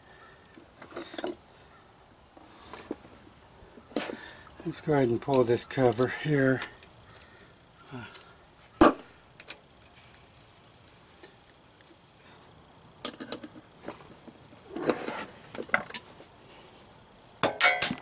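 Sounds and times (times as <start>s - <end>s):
metallic clinks of tools and bolts: 17.4s - 18.0s.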